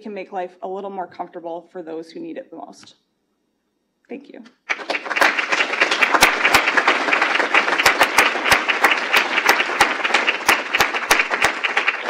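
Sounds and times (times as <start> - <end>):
audience applauding: 4.7 - 12.0.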